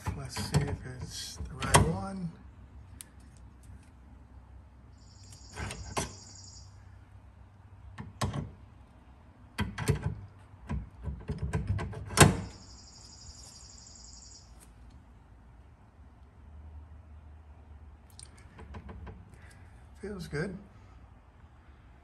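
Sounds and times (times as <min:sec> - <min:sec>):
metal clicks and knocks: 0:00.0 - 0:02.0, 0:07.9 - 0:08.6, 0:09.6 - 0:12.5
high even chirring: 0:04.9 - 0:06.9.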